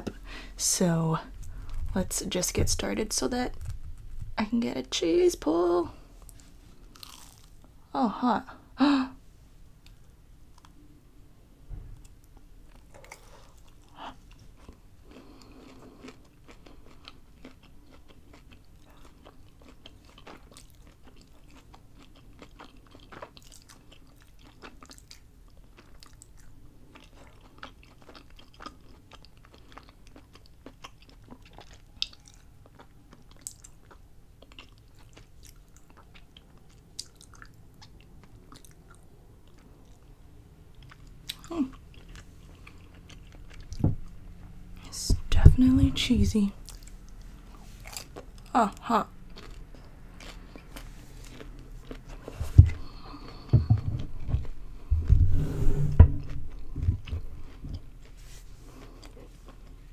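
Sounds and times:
person chewing crunchy food: 6.2 - 7.8, 12.0 - 44.9, 46.6 - 55.2, 56.2 - 59.9.

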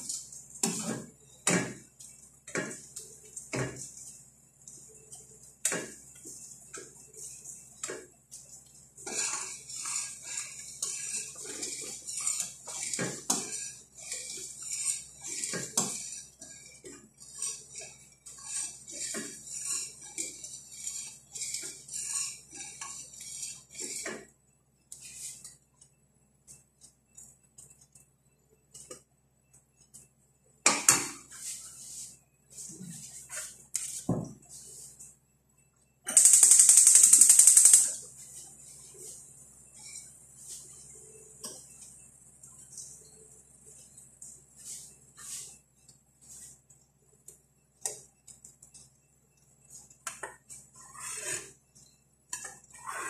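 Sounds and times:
spoon stirring in metal pot: 0.0 - 25.6, 49.6 - 53.0.

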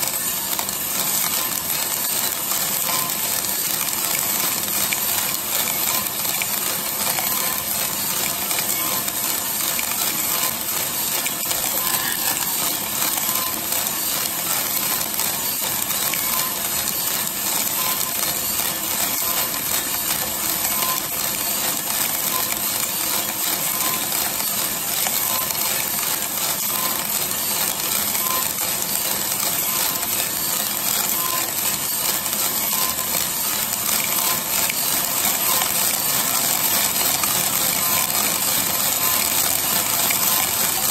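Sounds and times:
coffee beans rattling in roaster drum: 0.0 - 40.9.

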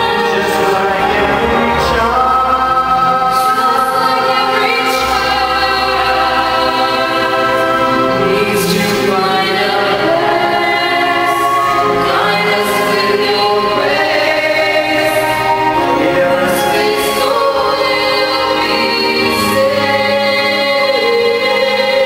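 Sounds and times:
man singing: 0.0 - 4.2
woman singing: 1.8 - 22.0.

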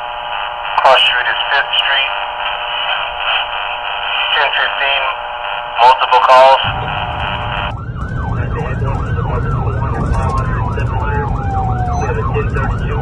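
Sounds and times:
engine and road rumble: 6.6 - 13.0
siren yelping: 6.6 - 13.0
slower falling siren tone: 6.7 - 13.0.

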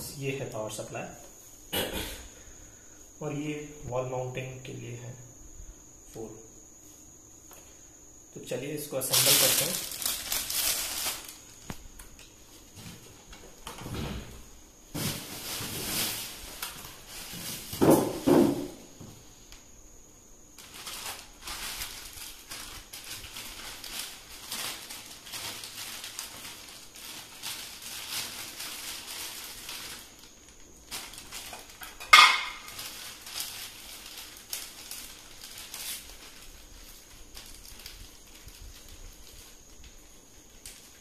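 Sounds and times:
plastic packaging rustling: 8.8 - 13.7, 14.9 - 18.7, 20.6 - 41.0.

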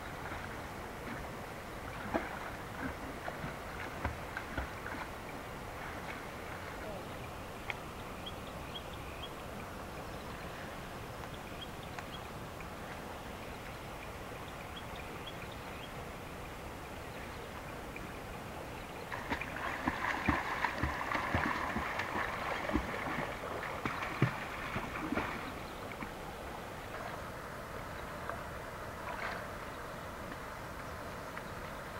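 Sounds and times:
swimming splashes in pond: 0.0 - 8.0, 16.0 - 31.9
faint steady water: 0.0 - 31.9.

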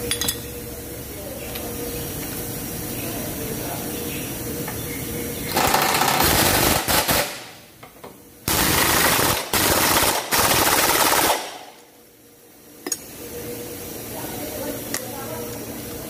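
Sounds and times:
pneumatic impact wrench hammering: 5.5 - 11.8.

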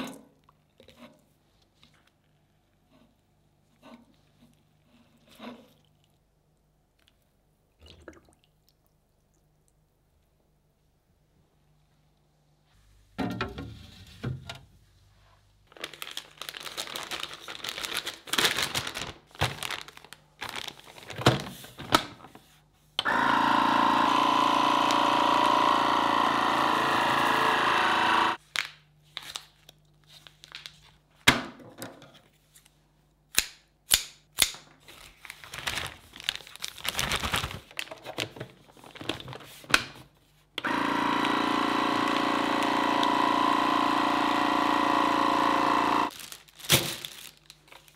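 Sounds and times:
plastic bags crinkling: 15.7 - 21.9, 35.0 - 39.6, 46.1 - 47.9
vacuum sealer pump running: 23.0 - 28.4, 40.6 - 46.1.

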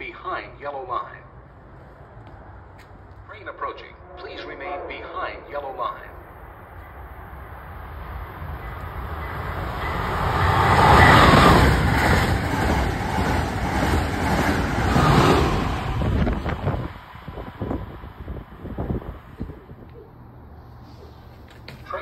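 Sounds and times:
high-speed train passing: 0.0 - 20.8.

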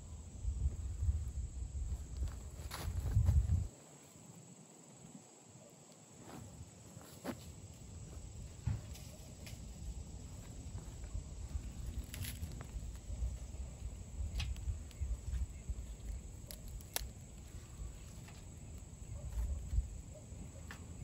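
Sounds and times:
wind rumbling on microphone: 0.0 - 3.7, 9.8 - 18.1.

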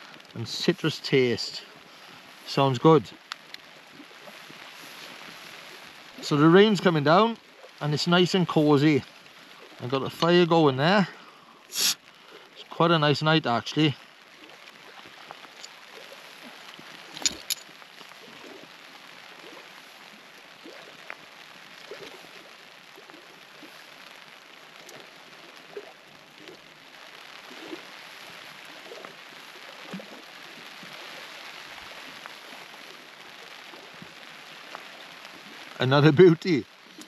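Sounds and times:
steady rain falling: 0.0 - 37.0.

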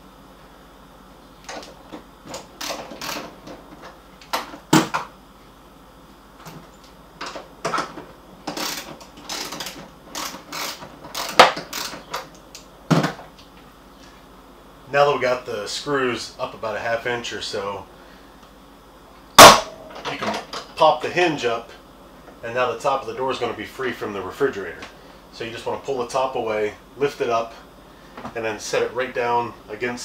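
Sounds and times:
wrench clicking and scraping on metal: 8.5 - 12.0.

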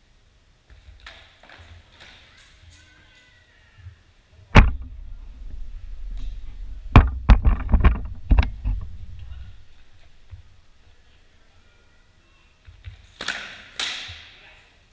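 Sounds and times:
low rumble: 4.6 - 10.8.

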